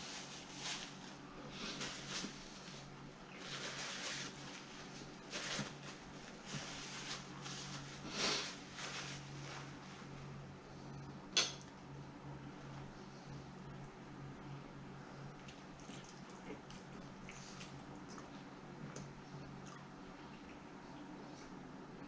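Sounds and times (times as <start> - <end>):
paper napkin rustling: 0.0 - 10.2
steady low hum: 0.0 - 22.0.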